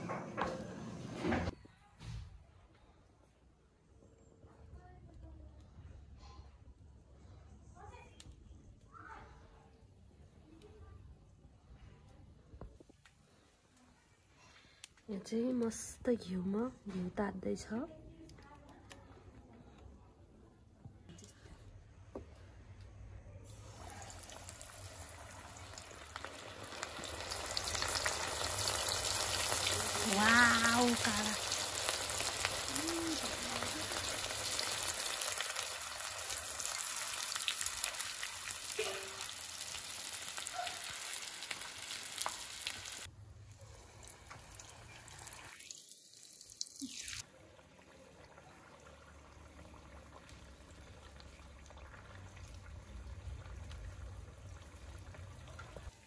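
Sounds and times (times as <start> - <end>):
batter sizzling in hot oil: 23.5 - 56.0.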